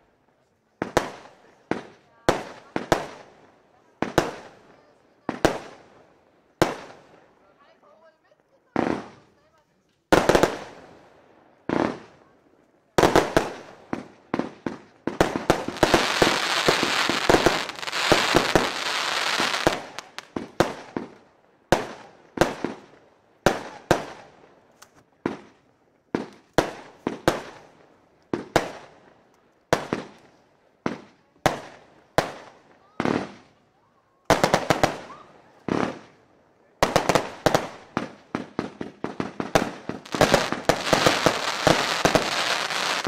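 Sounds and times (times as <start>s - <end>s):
firework crackling: 13.0s - 24.3s, 34.3s - 36.2s, 36.8s - 43.0s
firework shells bursting: 15.2s - 20.6s, 39.2s - 43.0s.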